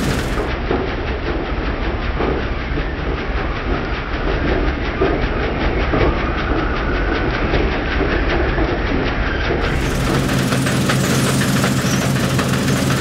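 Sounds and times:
combine harvester running: 0.0s - 0.8s, 9.6s - 13.0s.

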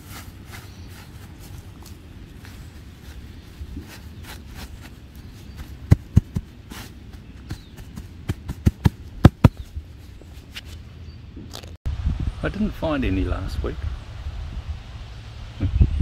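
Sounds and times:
dull low thumps: 5.5s - 9.9s
steady low rumble: 11.9s - 16.0s.

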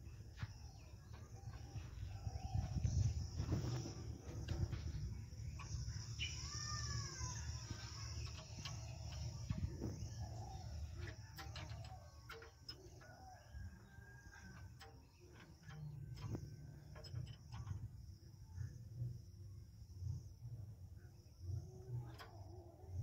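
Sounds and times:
steady low rumble: 0.0s - 6.5s
birds calling: 0.0s - 18.0s
clicks and taps on engine: 7.5s - 18.2s.

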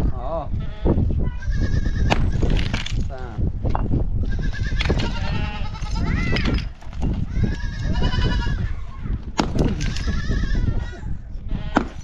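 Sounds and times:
sledgehammer striking rock: 2.1s - 3.0s, 9.3s - 9.9s, 11.7s - 12.0s
goats bleating: 4.2s - 6.4s, 7.3s - 8.7s, 9.7s - 11.9s.

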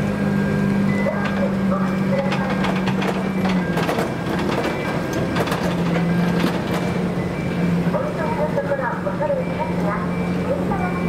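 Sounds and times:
heavy vehicle engine hum: 0.0s - 11.0s
metallic clicks and clanks: 1.2s - 7.0s.

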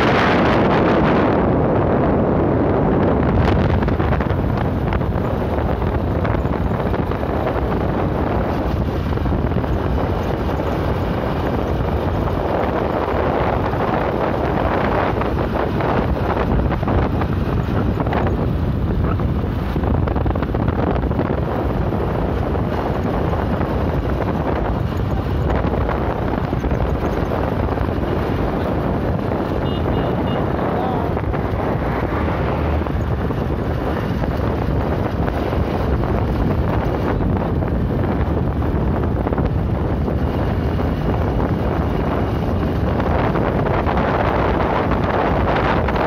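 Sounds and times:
low rumble of motorcycle ride: 0.0s - 46.0s
wind buffeting microphone: 0.0s - 46.0s.

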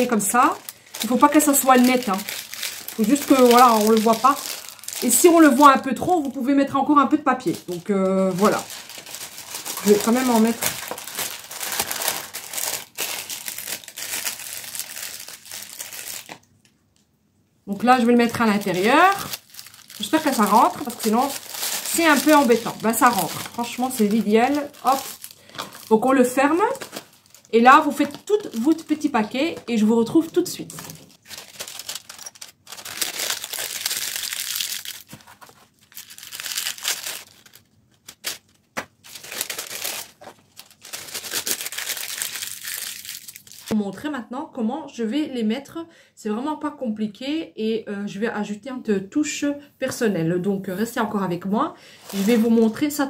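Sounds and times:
paper crinkling and rustling: 0.0s - 6.4s, 7.4s - 16.4s, 18.2s - 43.8s, 52.0s - 52.9s.

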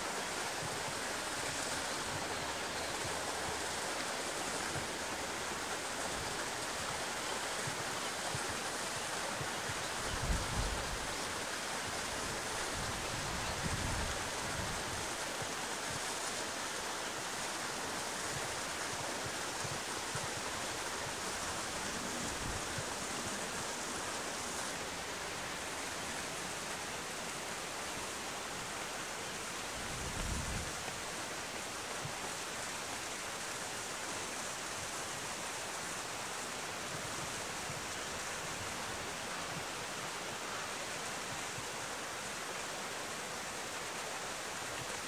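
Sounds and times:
river water flowing: 0.0s - 45.0s.

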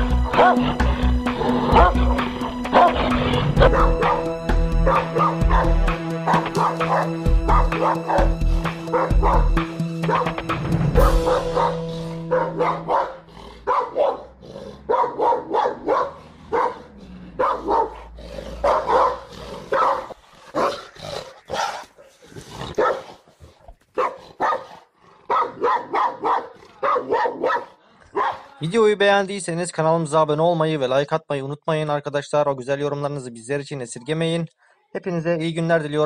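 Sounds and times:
dog barking: 0.2s - 0.8s, 1.7s - 2.0s, 2.7s - 8.3s, 8.9s - 9.5s, 10.1s - 10.4s, 11.0s - 20.8s, 22.7s - 23.2s, 23.9s - 28.6s.

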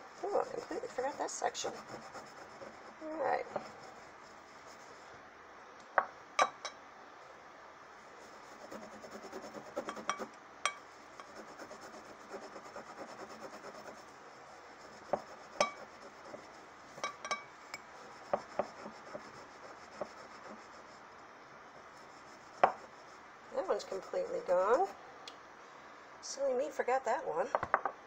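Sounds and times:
glass clinking: 6.4s - 6.8s, 10.1s - 10.8s, 17.0s - 17.8s
cloth scrubbing glass jar: 15.1s - 16.2s.

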